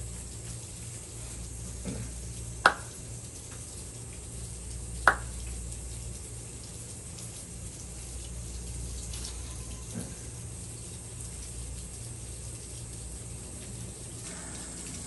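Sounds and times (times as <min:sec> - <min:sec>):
steady rain: 0:00.0 - 0:15.0
water running: 0:00.0 - 0:15.0.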